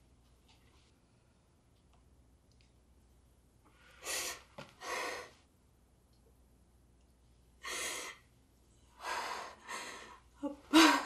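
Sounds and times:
person gasping breaths: 0:09.0 - 0:11.0.

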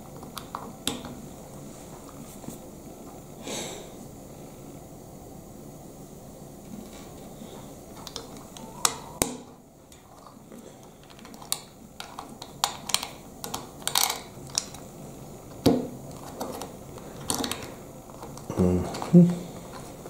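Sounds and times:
plastic bricks clicking: 0:08.0 - 0:14.8.

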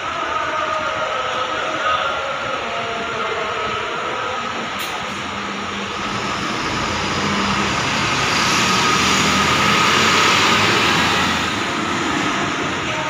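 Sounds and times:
tyres hissing on wet road: 0:04.8 - 0:13.0.

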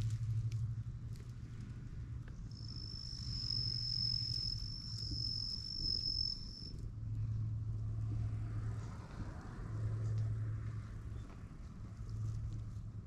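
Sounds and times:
low steady hum: 0:00.0 - 0:13.0
insect trilling: 0:02.5 - 0:06.7.

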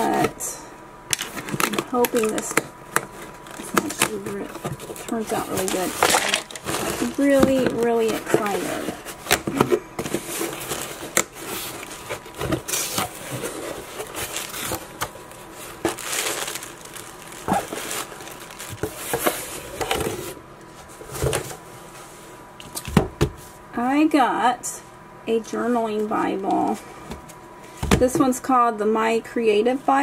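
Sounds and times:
plastic packing crinkling: 0:01.1 - 0:20.4
cardboard box being handled: 0:03.0 - 0:21.6.

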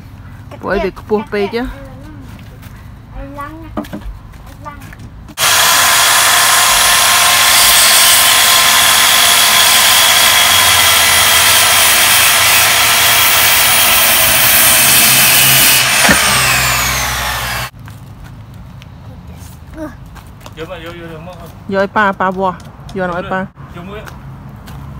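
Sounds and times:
circular saw cutting wood: 0:05.3 - 0:17.7.

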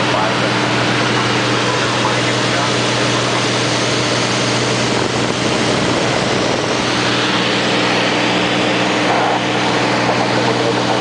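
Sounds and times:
propeller aircraft engine drone: 0:00.0 - 0:11.0
air rushing: 0:03.5 - 0:10.4.

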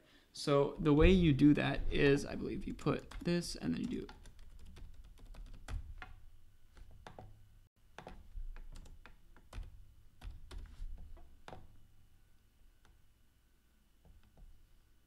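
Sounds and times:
typing on computer keyboard: 0:02.7 - 0:06.2, 0:08.0 - 0:10.7.

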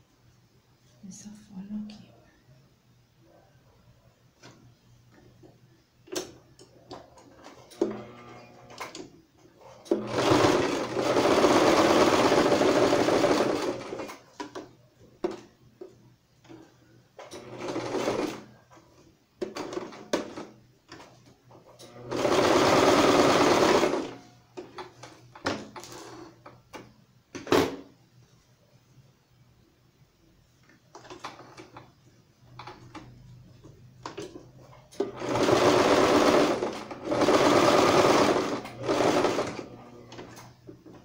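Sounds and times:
sewing machine stitching: 0:09.7 - 0:14.3, 0:17.2 - 0:18.5, 0:21.9 - 0:24.2, 0:34.2 - 0:40.5.

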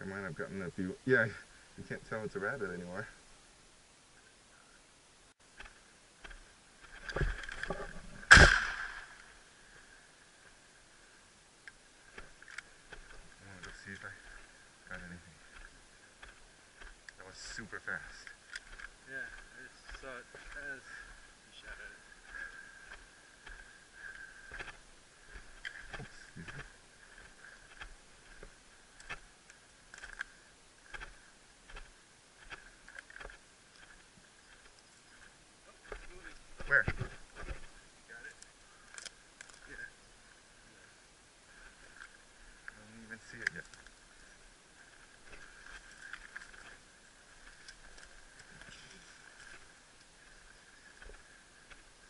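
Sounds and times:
footsteps crunching on dry dirt: 0:12.0 - 0:29.4, 0:30.0 - 0:37.8, 0:41.5 - 0:52.0.

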